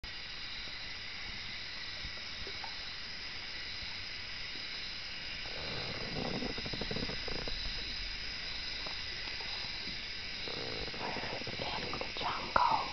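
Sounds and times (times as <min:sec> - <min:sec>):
high-pitched rainforest hiss: 0:00.0 - 0:12.9.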